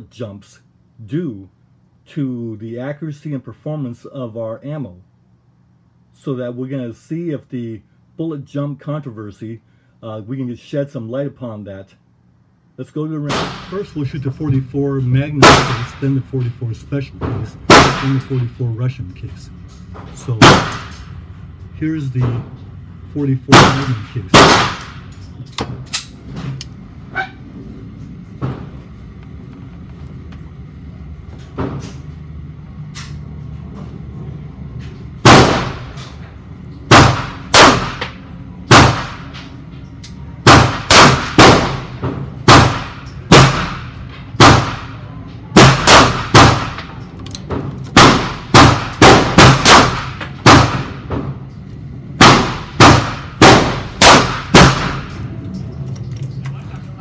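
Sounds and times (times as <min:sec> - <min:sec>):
loud gunshots with echo: 0:15.4 - 0:16.2, 0:17.6 - 0:18.3, 0:20.4 - 0:21.1, 0:23.5 - 0:25.1, 0:35.2 - 0:36.0, 0:36.9 - 0:39.3, 0:40.4 - 0:45.0, 0:45.6 - 0:46.9, 0:47.9 - 0:51.1, 0:52.2 - 0:55.1.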